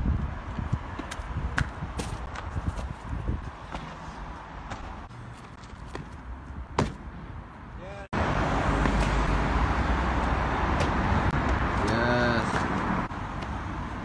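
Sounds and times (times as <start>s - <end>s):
loud rushing outdoor noise: 0.0s - 14.0s
thud of landing: 6.8s - 7.0s.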